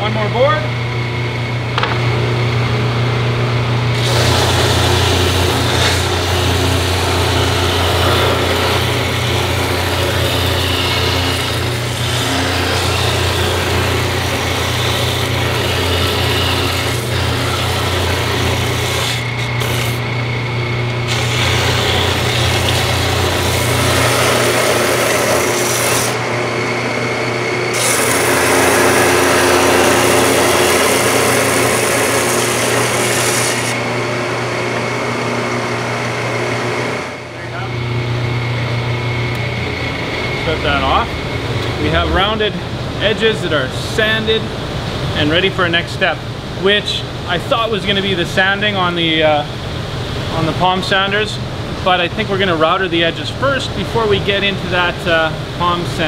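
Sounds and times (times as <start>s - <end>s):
sander motor humming: 0.7s - 42.8s
wood sanding rasp: 4.0s - 20.0s, 21.1s - 26.2s, 27.8s - 33.8s.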